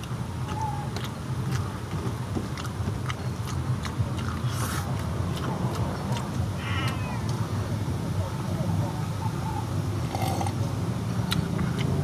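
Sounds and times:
wet chewing clicks and smacks: 0.0s - 6.5s, 11.2s - 12.0s
wavering animal cry: 6.6s - 7.3s.

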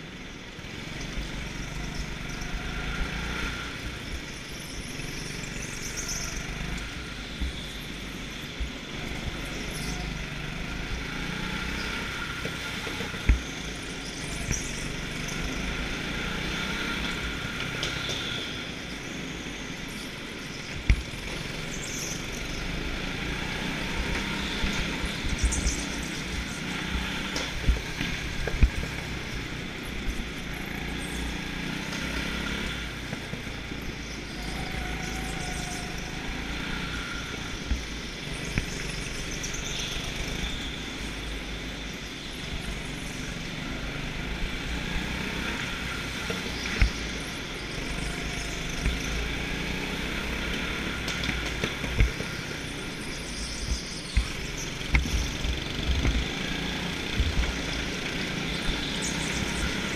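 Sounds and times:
go-kart engine running: 0.0s - 59.9s.

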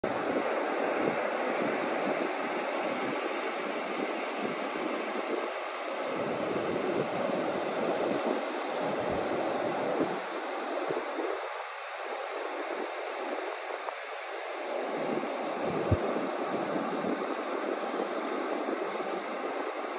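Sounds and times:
surf washing on beach: 0.1s - 19.9s.

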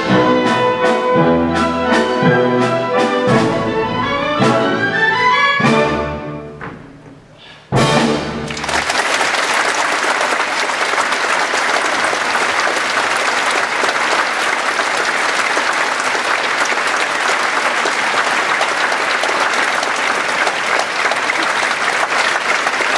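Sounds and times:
audience applauding: 8.4s - 22.9s.

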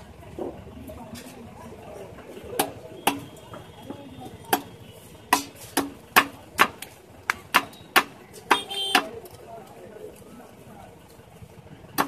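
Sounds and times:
blade chopping on wooden block: 5.3s - 9.1s.

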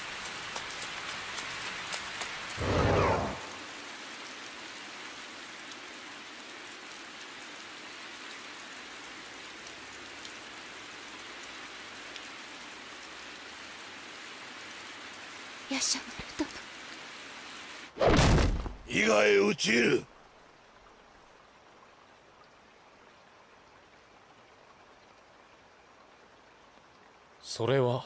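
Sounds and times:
heavy rain falling: 0.0s - 18.0s, 18.6s - 20.2s.

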